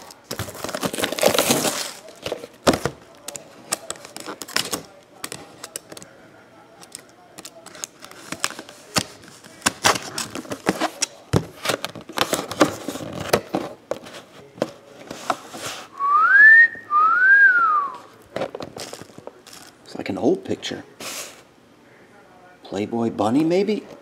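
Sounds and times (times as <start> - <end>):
cardboard box clicks and crinkles: 0.0 - 4.8
person wolf whistling: 16.0 - 18.0.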